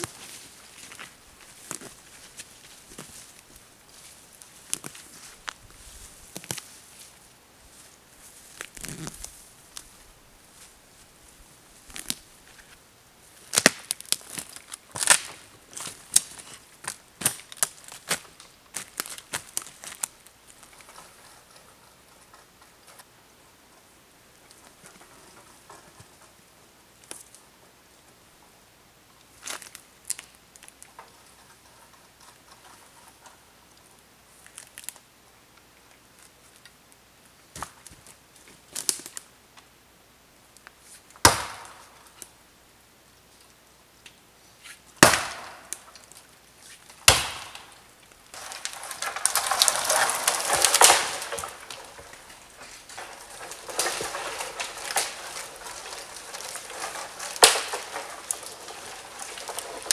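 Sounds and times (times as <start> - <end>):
footsteps in dry forest litter: 0.0 - 20.9, 44.6 - 59.9
rustling brush: 0.0 - 22.6
dry branches crackling and snapping: 0.0 - 23.1, 27.0 - 27.4, 29.3 - 35.1, 37.5 - 39.3, 40.6 - 42.4, 45.0 - 59.9
chopping blows into wood: 41.2 - 41.8, 45.0 - 45.7, 47.1 - 47.7.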